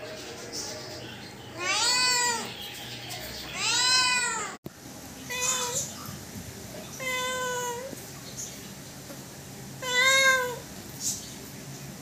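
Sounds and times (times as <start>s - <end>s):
cat meowing: 1.5s - 2.6s, 3.5s - 4.6s, 5.3s - 5.9s, 6.9s - 8.0s, 9.8s - 10.7s.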